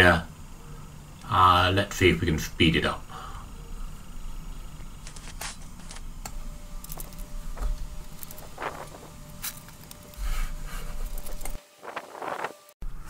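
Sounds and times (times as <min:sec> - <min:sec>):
steady low rumble: 0:00.0 - 0:11.6.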